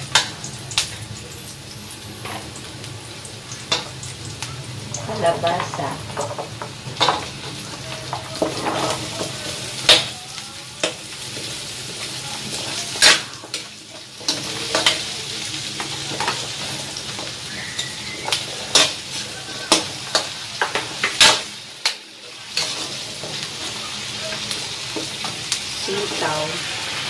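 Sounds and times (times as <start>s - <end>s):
food sizzling in hot oil: 0.0s - 27.0s
metal spatula scraping wok: 8.1s - 10.0s, 16.0s - 27.0s.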